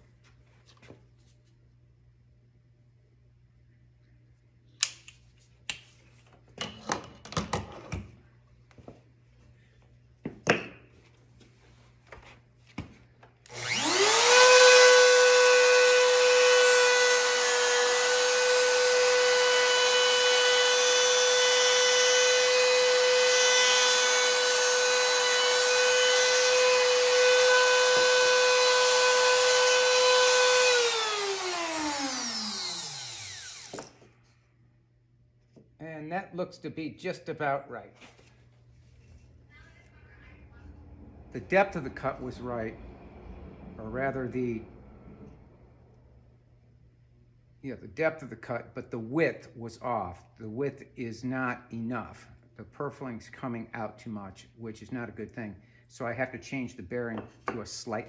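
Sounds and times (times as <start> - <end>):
router spinning down: 13.5 - 34.0
router whining while cutting wood: 13.5 - 34.0.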